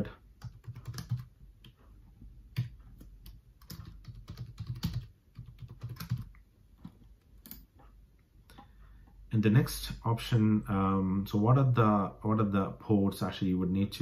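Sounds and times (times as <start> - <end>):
typing on keyboard: 0.4 - 1.8, 2.5 - 7.8.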